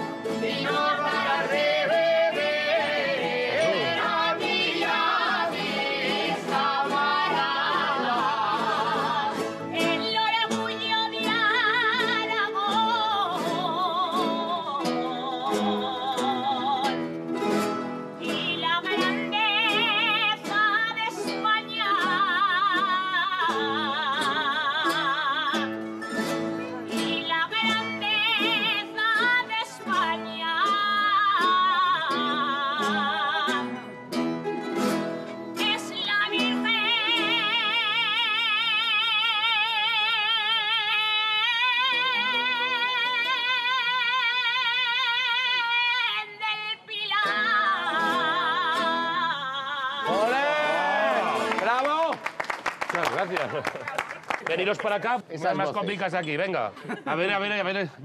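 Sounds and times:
person singing with vibrato: 0.0 - 17.2, 18.1 - 25.8, 26.9 - 33.9, 35.5 - 51.3
plucked guitar strings: 0.0 - 44.0.

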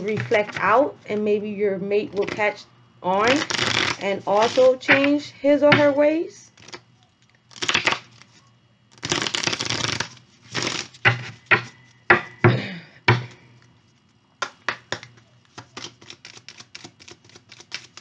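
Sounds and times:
cards being shuffled by hand: 2.1 - 2.5, 3.2 - 5.9, 6.5 - 12.0, 13.1 - 18.0.

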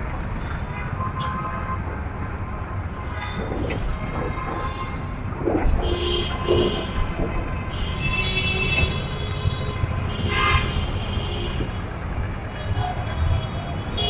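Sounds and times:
traffic engines passing: 0.0 - 14.0
vehicle horn blasts: 7.8 - 11.6.

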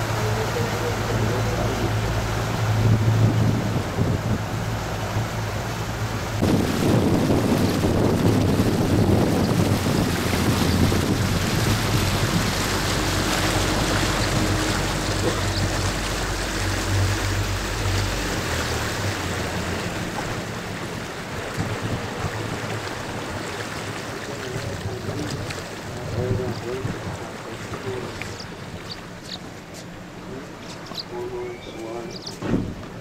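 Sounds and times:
outboard motor running: 0.0 - 33.0
water rushing past hull: 0.0 - 33.0
wind on microphone: 1.1 - 23.5.

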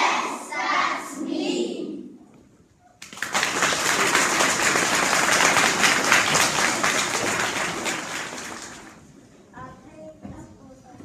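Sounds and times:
children clapping: 3.0 - 9.0.

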